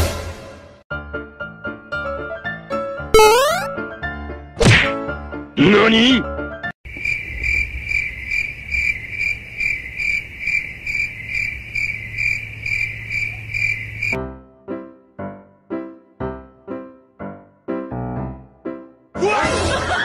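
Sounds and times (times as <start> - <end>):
crickets chirping: 6.9 - 14.2.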